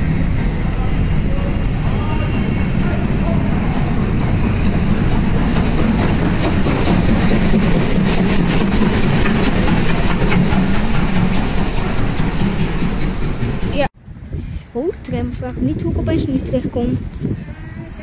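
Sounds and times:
steam locomotive passing: 0.0 - 14.0.

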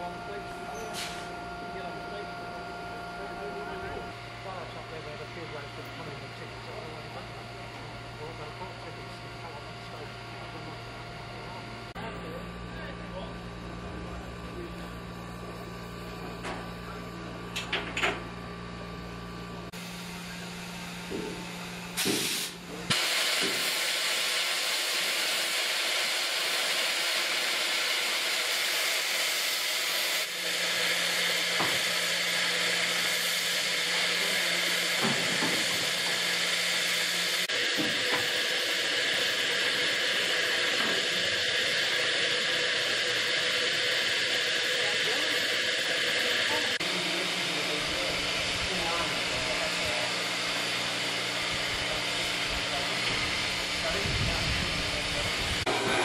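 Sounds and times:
steam hissing: 0.7 - 1.4, 21.0 - 56.0.

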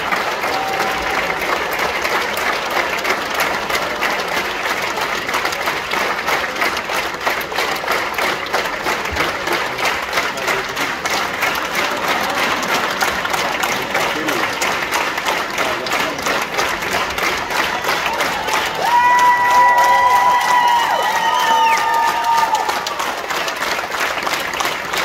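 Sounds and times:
audience applauding: 0.0 - 25.0.

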